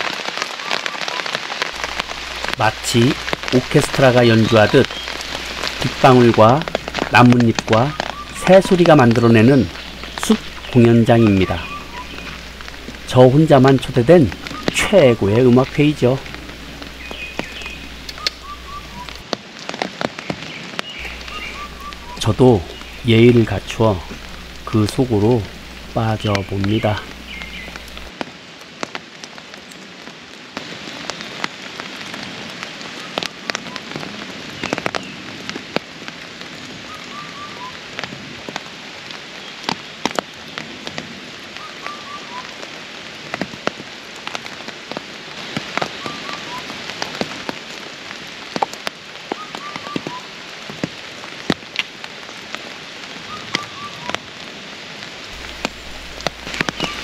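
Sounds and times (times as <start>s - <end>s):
rain drops tapping on leaves: 0.0s - 57.0s
steady rain: 0.0s - 57.0s
bird calling: 1.8s - 19.2s, 21.0s - 28.1s, 36.9s - 37.8s, 41.6s - 42.5s, 45.9s - 46.7s, 53.3s - 54.2s, 55.3s - 57.0s.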